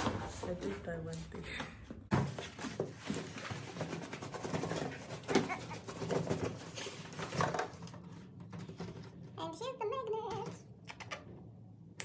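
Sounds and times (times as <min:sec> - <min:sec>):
cardboard rustling and scraping: 0:02.1 - 0:09.2.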